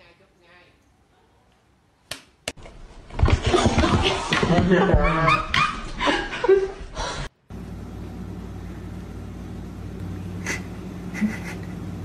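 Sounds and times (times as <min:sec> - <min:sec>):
low machine hum: 0:06.0 - 0:12.0.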